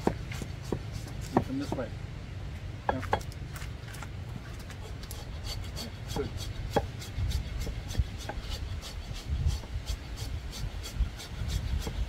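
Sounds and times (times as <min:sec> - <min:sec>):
rasp filing toenail: 0:04.8 - 0:12.0.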